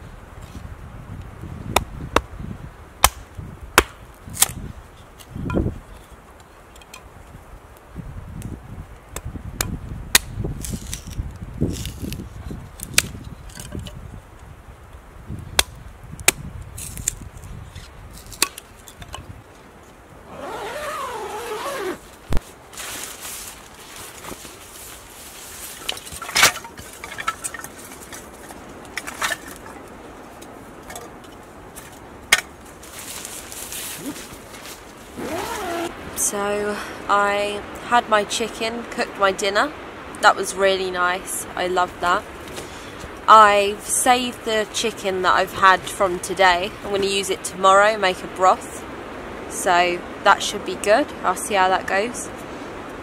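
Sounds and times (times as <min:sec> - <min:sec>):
rustling: 0:10.6 - 0:13.8, 0:16.7 - 0:36.0.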